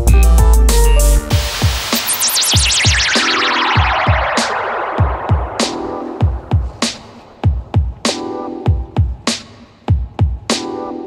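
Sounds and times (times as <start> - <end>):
wavering high synth tone: 2.0 - 7.5.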